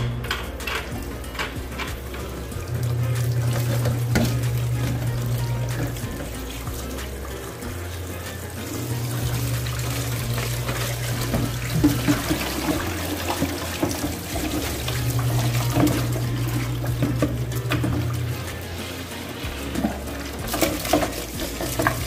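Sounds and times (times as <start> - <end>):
colander and basin clunks: 0.0 - 22.0
tap water splashing into sink: 1.4 - 18.8, 19.6 - 22.0.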